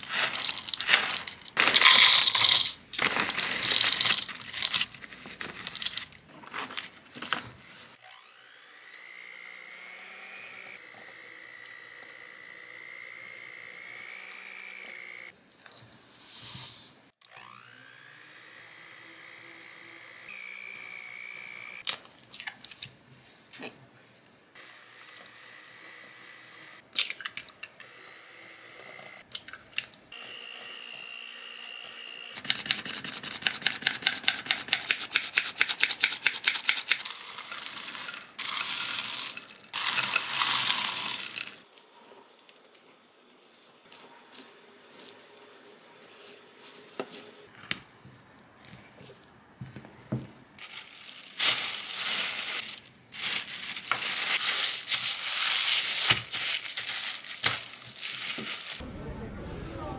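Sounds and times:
chips rattling into bowl: 0.0s - 6.8s, 36.2s - 41.6s
plastic bag crinkling: 0.0s - 7.0s, 37.0s - 41.6s, 50.6s - 58.8s
electric hand mixer running: 8.0s - 15.3s, 17.3s - 21.8s, 30.2s - 32.5s.

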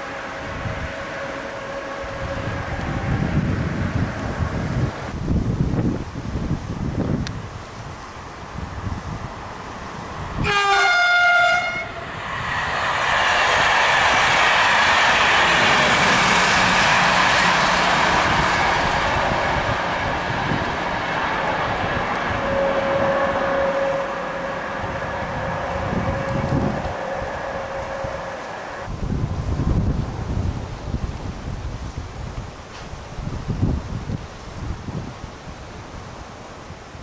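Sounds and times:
train horn: 0.0s - 3.6s, 10.4s - 12.1s, 14.2s - 20.6s, 21.8s - 28.9s
train wheels rushing on rails: 0.0s - 5.2s, 6.8s - 31.6s
steady tone: 11.8s - 28.9s.

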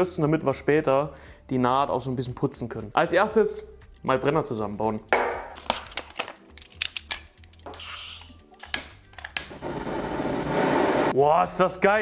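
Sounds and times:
gas torch hissing: 9.5s - 11.2s.

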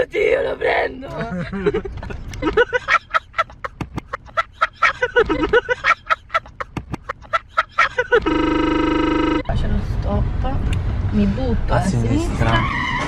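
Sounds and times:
buzzy tone: 8.2s - 9.5s.

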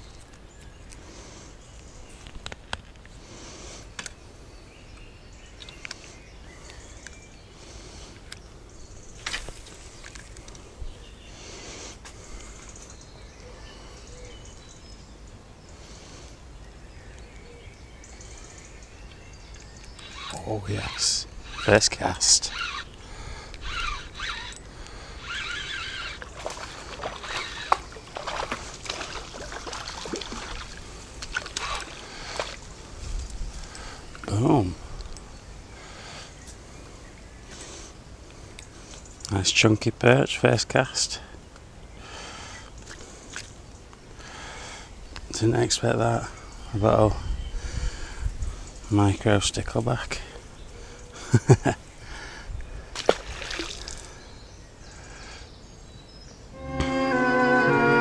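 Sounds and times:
fish splashing in water: 25.4s - 32.6s, 53.0s - 54.2s.

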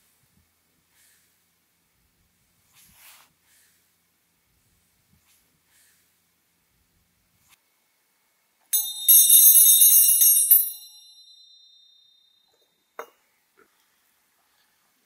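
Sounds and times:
brass hand bell ringing: 8.8s - 12.2s.

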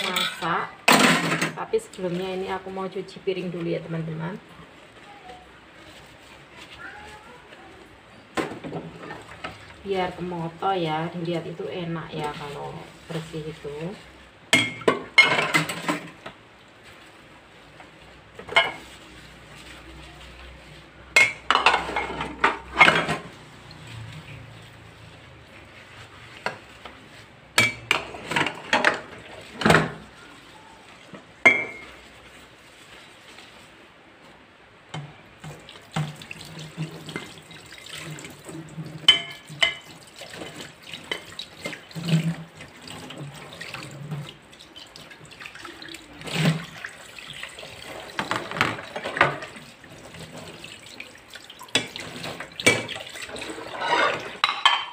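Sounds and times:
plates and glasses clinking: 31.4s - 32.0s, 39.0s - 39.9s, 53.6s - 54.9s.

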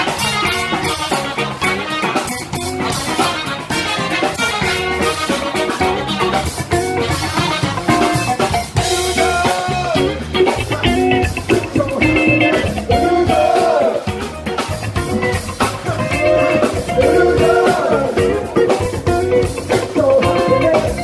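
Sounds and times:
drum kit: 0.0s - 21.0s
electric guitar: 0.0s - 21.0s.

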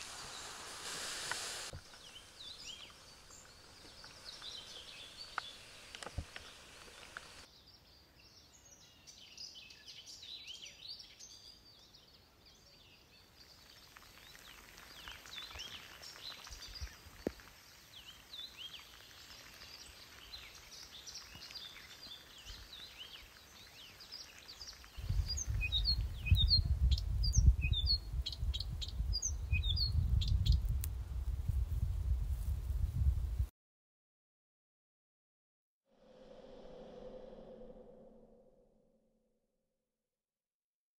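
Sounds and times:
birds chirping: 0.0s - 30.6s
loud low rumble: 36.0s - 38.9s.

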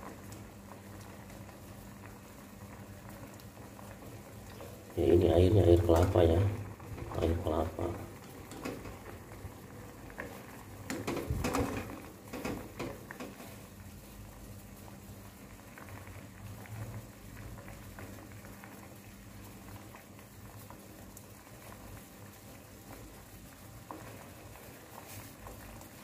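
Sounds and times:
liquid bubbling at a boil: 0.0s - 26.0s.

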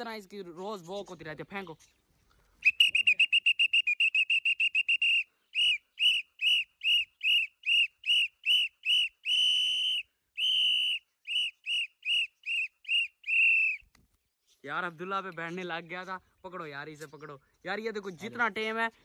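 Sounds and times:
whistle blasts: 2.6s - 13.9s.

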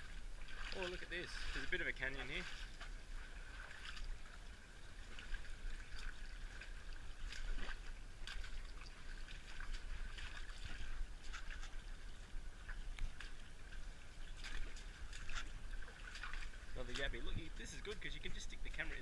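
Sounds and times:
creek trickling over rocks: 0.0s - 19.0s
small water splashes: 0.0s - 19.0s.

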